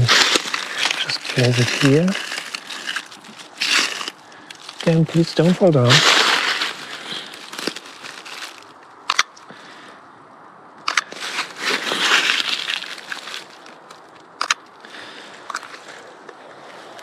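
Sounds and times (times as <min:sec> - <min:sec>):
crunching of frosty grass and leaves: 0:00.0 - 0:10.0, 0:10.8 - 0:17.0
sharp clicks: 0:10.8 - 0:11.1, 0:14.4 - 0:14.7.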